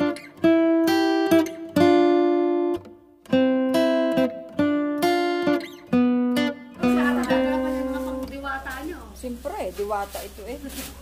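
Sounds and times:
acoustic guitar strumming chords: 0.0s - 8.6s.

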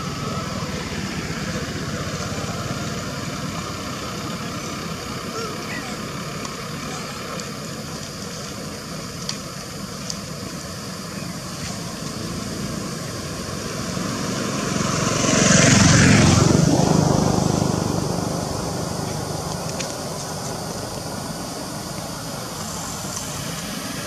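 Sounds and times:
vehicle passing: 12.0s - 24.0s.

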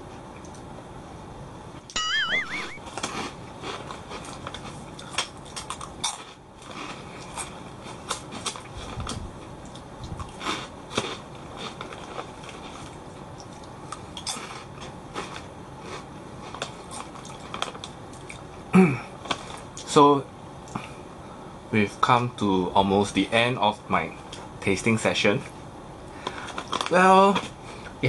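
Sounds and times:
prawn crackers crunching: 2.9s - 13.0s, 14.2s - 18.4s, 26.2s - 27.6s.

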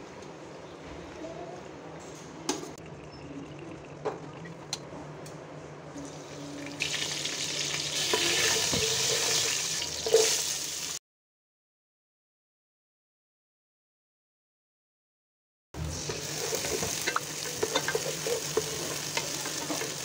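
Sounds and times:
seeds sizzling in hot oil: 6.8s - 11.0s, 15.8s - 20.0s.

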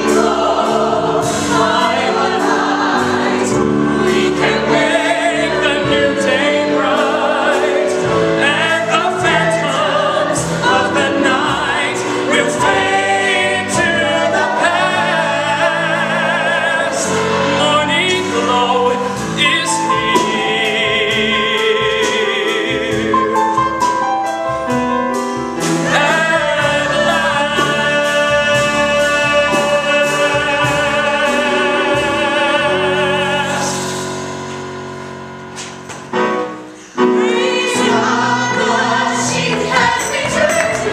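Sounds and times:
vocal ensemble singing: 0.0s - 24.0s, 25.5s - 34.9s, 36.4s - 40.9s
piano bass and drums: 0.0s - 40.9s
man singing: 8.4s - 23.3s, 25.9s - 34.0s.

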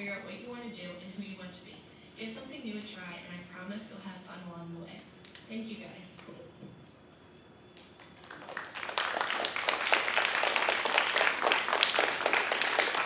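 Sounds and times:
audience clapping: 7.8s - 13.0s.

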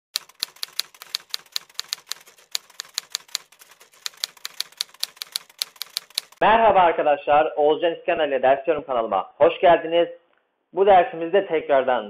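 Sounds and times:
typewriter key clacks: 0.2s - 6.4s.

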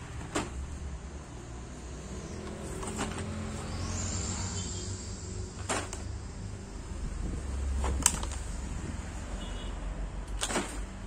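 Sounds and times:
plastic packs crackling: 7.7s - 8.7s.

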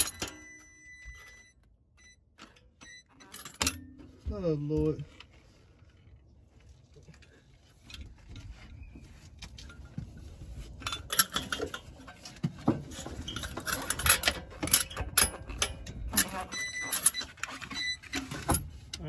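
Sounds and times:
metal tools clanking on exhaust pipe: 2.4s - 5.0s, 10.6s - 19.0s.

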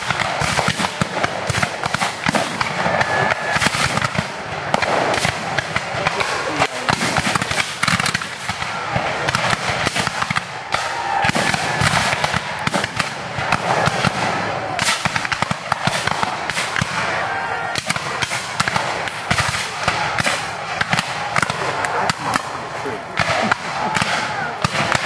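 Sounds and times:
rifles firing rolling volley: 0.0s - 25.0s.

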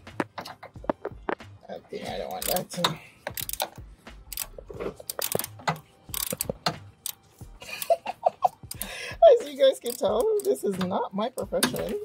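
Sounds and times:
socket ratchet clicking: 2.3s - 8.0s, 8.6s - 8.9s, 9.8s - 12.0s.

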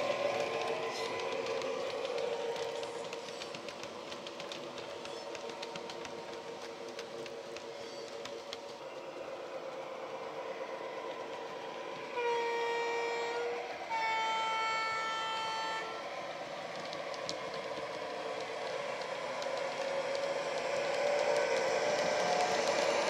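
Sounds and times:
two-tone train horn: 12.0s - 16.2s.

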